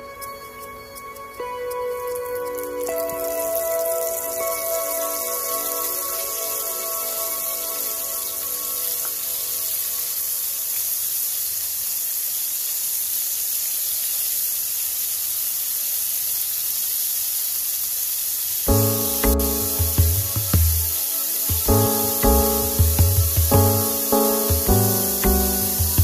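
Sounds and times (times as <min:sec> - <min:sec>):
background music: 0:00.0 - 0:10.0, 0:18.7 - 0:26.0
oil sizzling while deep-frying: 0:02.1 - 0:26.0.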